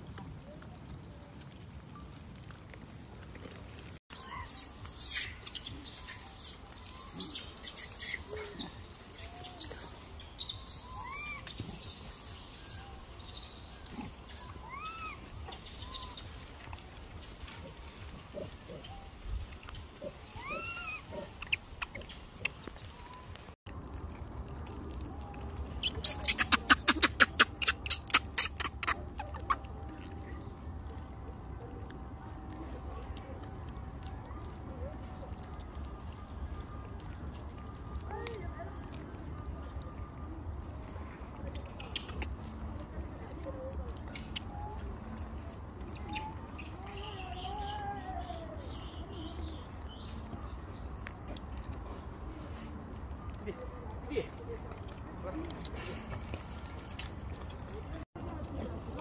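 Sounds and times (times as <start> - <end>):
birds chirping: 4.1 - 23.6, 25.6 - 31.0.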